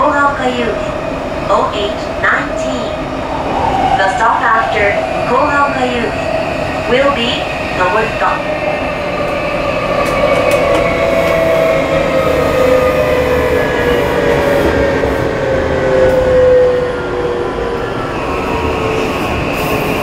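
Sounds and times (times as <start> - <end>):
wheels rumbling on rail: 0.0 - 20.0.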